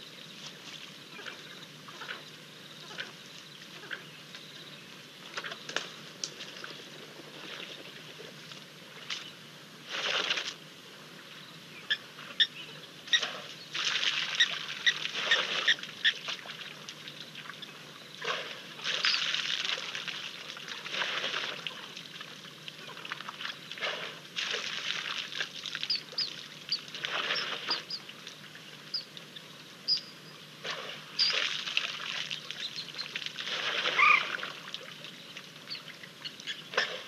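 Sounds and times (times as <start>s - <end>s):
elephants splashing through water: 9.9s - 10.6s, 13.1s - 17.1s, 18.2s - 26.2s, 26.9s - 28.0s, 30.6s - 35.0s, 36.7s - 37.0s
birds chirping: 31.1s - 31.5s, 32.4s - 33.2s, 35.0s - 37.0s.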